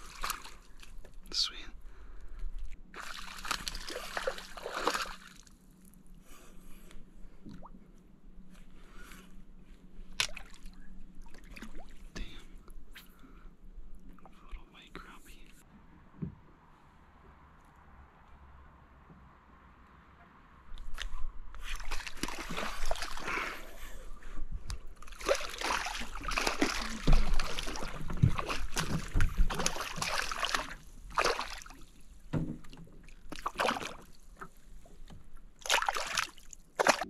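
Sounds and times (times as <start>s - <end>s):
fish splashing at water surface: 3.0s - 5.5s, 21.7s - 23.6s, 25.0s - 31.9s, 35.6s - 37.0s.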